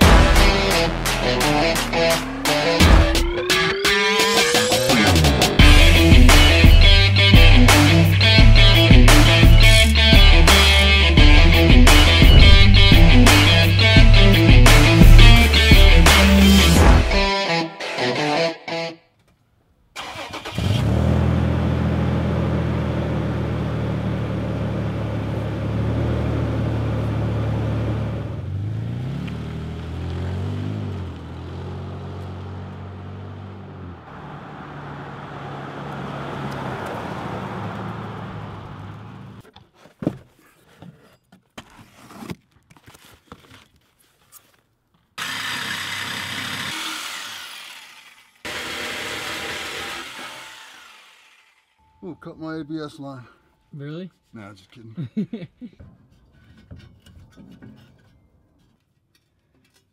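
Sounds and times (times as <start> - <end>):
truck driving off: 0.0 - 17.1, 20.0 - 39.4
truck engine idling and revving: 0.0 - 17.3, 20.0 - 39.5
power tool whirr: 45.2 - 51.8.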